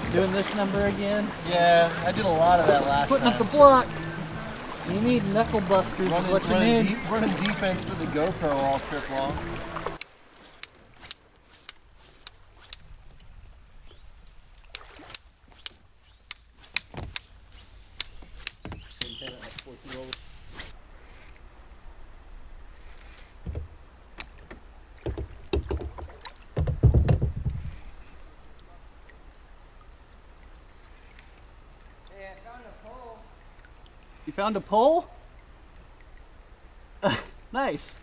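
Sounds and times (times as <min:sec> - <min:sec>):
paddle knocking on kayak: 0:00.0 - 0:10.0, 0:16.9 - 0:17.2, 0:18.0 - 0:19.4, 0:23.4 - 0:28.0
water splashing and sloshing: 0:00.0 - 0:38.0.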